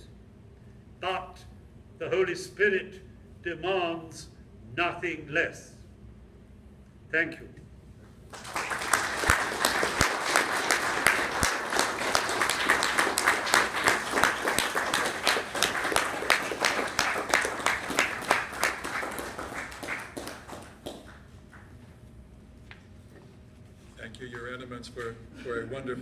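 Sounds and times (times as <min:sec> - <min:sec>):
audience applauding: 0:08.3 - 0:21.8.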